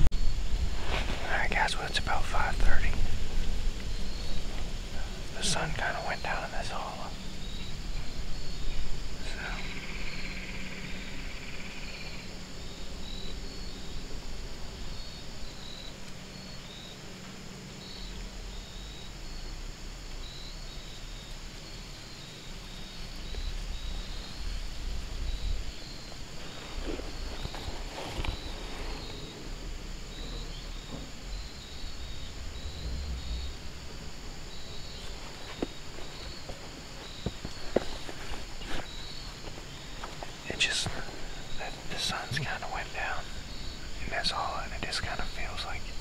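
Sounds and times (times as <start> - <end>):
buzzing insect trill: 0.0 - 46.0
crickets chirping: 0.0 - 46.0
low rumble: 23.5 - 35.3.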